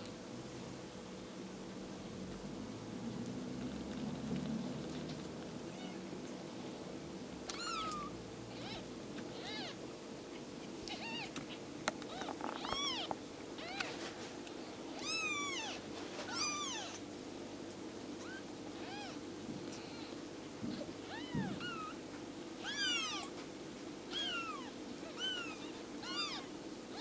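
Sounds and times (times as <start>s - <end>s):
steady low hum: 0.0s - 27.0s
kittens mewing: 7.5s - 9.8s, 10.4s - 14.1s, 14.9s - 17.0s, 18.2s - 19.2s, 19.8s - 22.0s, 22.6s - 23.4s, 24.1s - 27.0s.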